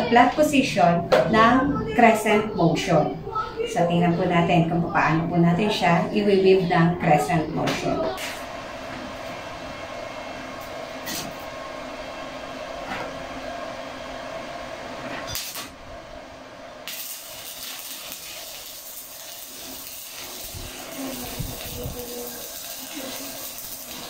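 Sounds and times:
welder hum: 8.2 - 24.0
welding arc crackling hiss: 15.3 - 15.8, 16.8 - 24.0.

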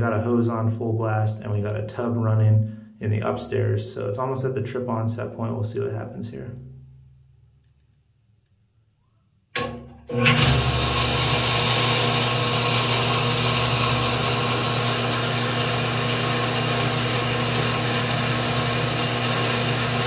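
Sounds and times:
pump motor humming: 9.6 - 20.0.

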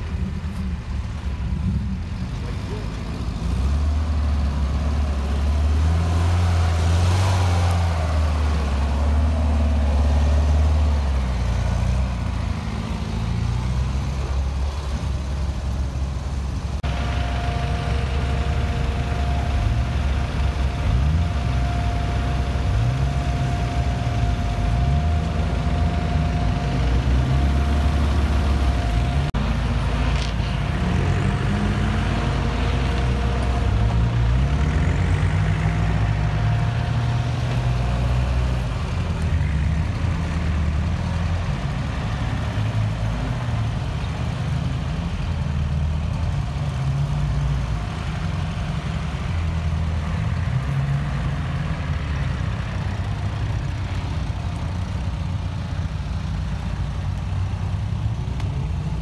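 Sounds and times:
buggy engine revving: 0.0 - 59.0
truck engine running under load: 0.0 - 59.0
steady high whine: 16.8 - 34.5.

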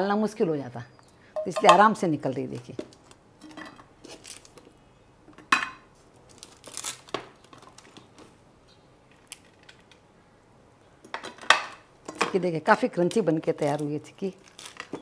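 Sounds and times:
pieces knocking against plate: 1.4 - 1.9
paper crinkling: 4.0 - 4.7, 6.0 - 8.4, 13.6 - 15.0.

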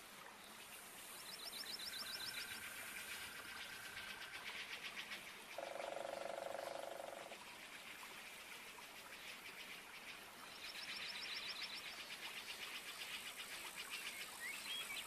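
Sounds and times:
low pulsed frog trill: 5.6 - 7.3
high pulsed frog chirping: 5.6 - 7.4.

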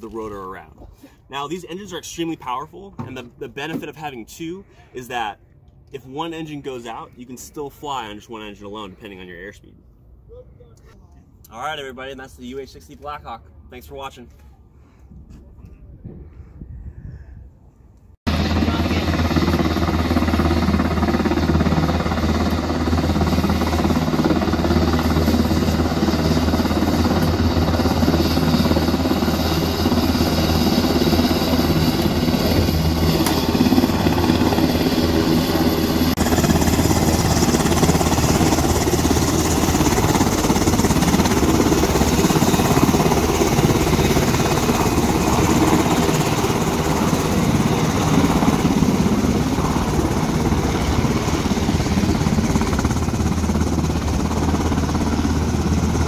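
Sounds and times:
helicopter rotor drone: 18.3 - 56.0.

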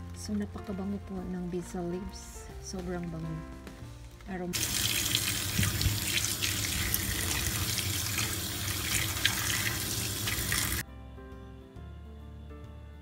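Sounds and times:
soft music: 0.0 - 13.0
kitchen tap running: 4.6 - 10.8.

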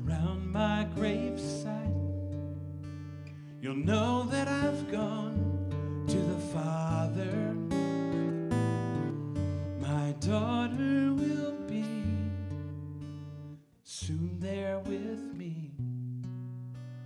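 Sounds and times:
man singing wordless phrases: 0.0 - 2.1, 3.6 - 8.0, 9.7 - 12.5, 13.8 - 15.8
acoustic guitar strumming: 0.0 - 17.0.

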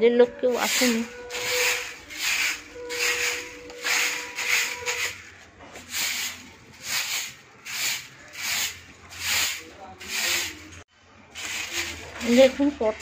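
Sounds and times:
broom sweeping tiles: 0.4 - 13.0.

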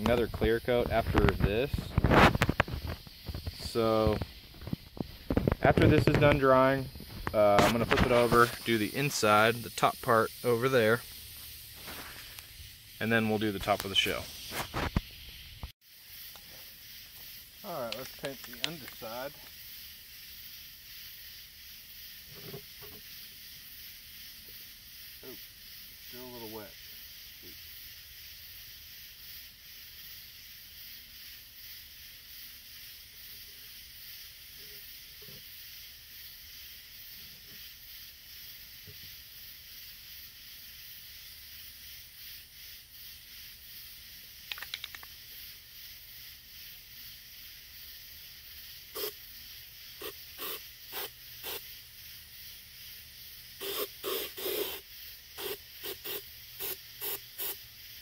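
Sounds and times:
steady high hiss: 0.0 - 58.0
aerosol can rattle: 1.2 - 6.2, 44.4 - 45.2, 50.0 - 51.6, 53.6 - 54.8, 55.4 - 57.6
aerosol can spraying: 48.9 - 49.2, 50.0 - 51.7, 53.6 - 57.6.

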